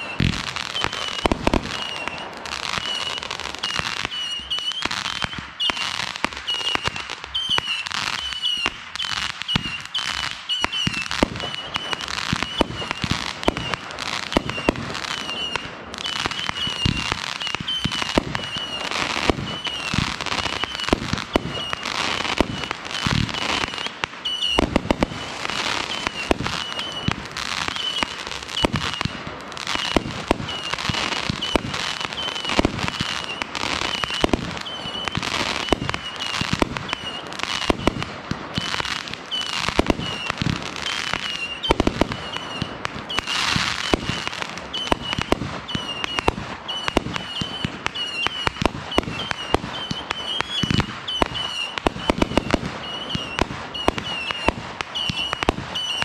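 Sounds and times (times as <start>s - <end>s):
firework bursts: 0.0s - 56.0s
firework crackling: 0.0s - 56.0s.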